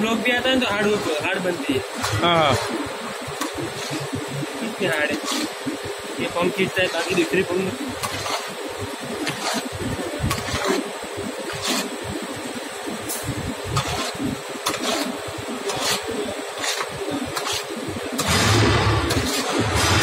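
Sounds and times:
machinery din with high whine: 0:00.0 - 0:20.0
sharp mechanical knocks: 0:18.2 - 0:20.0.

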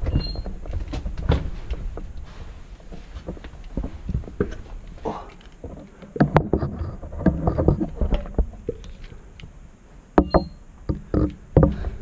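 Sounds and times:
footsteps on rubble: 0:00.0 - 0:06.0.

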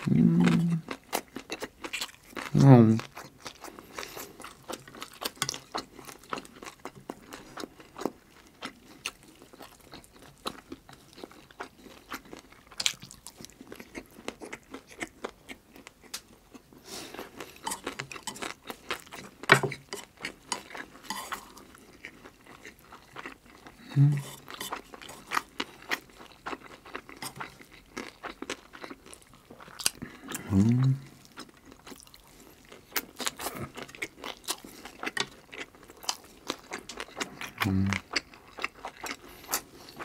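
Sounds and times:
close chewing and crunching: 0:00.0 - 0:40.0
chopsticks tapping on dishes: 0:19.4 - 0:21.3.

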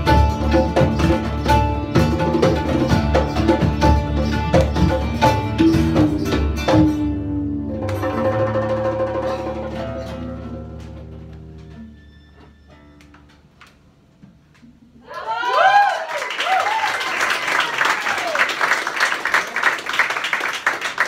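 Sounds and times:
live band playing: 0:00.0 - 0:12.6.

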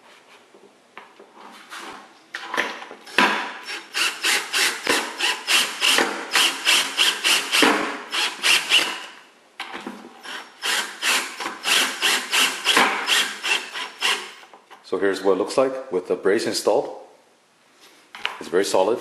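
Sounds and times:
cordless drill driving screws: 0:03.1 - 0:09.1, 0:10.2 - 0:14.4.

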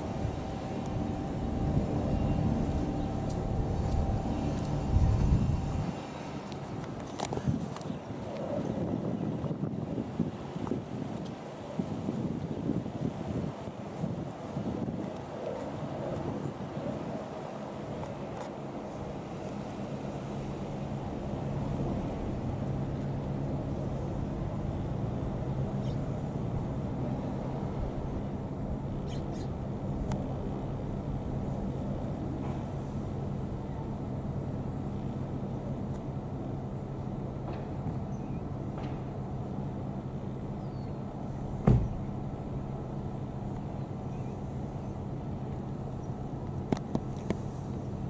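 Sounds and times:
helicopter flying past: 0:00.0 - 0:07.0
helicopter flying overhead: 0:00.0 - 0:48.0
brief thump: 0:41.6 - 0:42.0.

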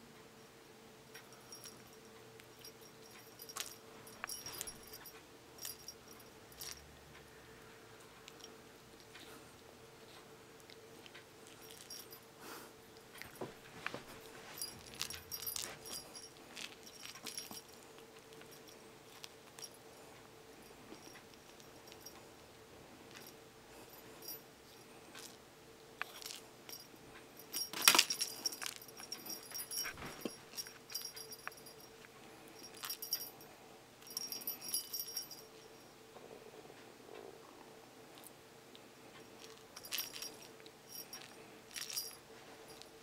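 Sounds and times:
faint steady hum: 0:00.0 - 0:43.0
light jingly clicks: 0:00.4 - 0:07.6, 0:08.2 - 0:09.4, 0:10.1 - 0:25.4, 0:26.0 - 0:36.0, 0:39.2 - 0:43.0
toy rustling: 0:01.2 - 0:06.8, 0:11.1 - 0:19.8, 0:20.6 - 0:22.3, 0:23.1 - 0:25.4, 0:26.0 - 0:33.4, 0:34.0 - 0:35.8, 0:39.2 - 0:43.0.

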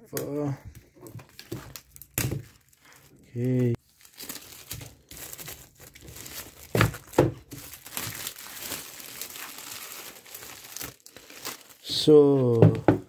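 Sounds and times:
plastic packaging crinkling and tearing: 0:00.0 - 0:12.6.

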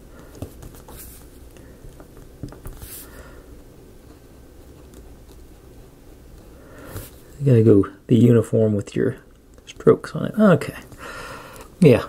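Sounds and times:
soft hissy strokes: 0:02.6 - 0:07.7.

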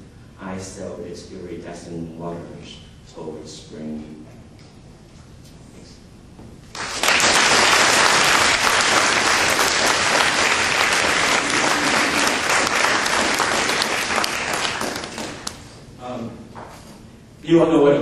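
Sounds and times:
audience applauding: 0:06.7 - 0:15.8.

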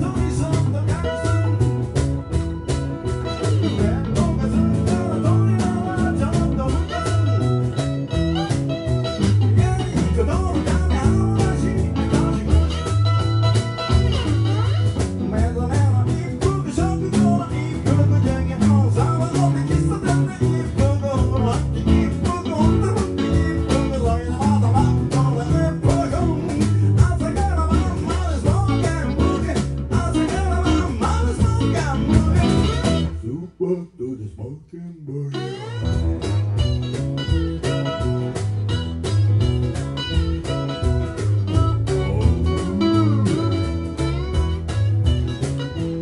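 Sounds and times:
electric guitars playing blues: 0:00.0 - 0:33.8, 0:35.1 - 0:46.0
harmonica playing: 0:41.5 - 0:45.8.

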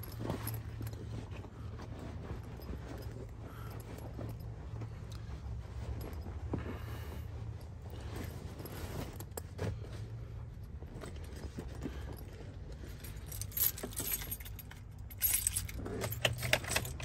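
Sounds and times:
low steady hum: 0:00.0 - 0:17.0
keys jangling: 0:11.0 - 0:17.0.

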